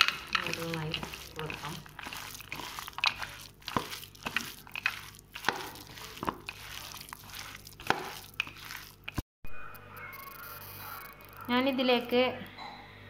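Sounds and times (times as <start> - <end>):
hand squishing wet paste: 0.0 - 9.2
peanuts clicking against plate: 0.0 - 9.2.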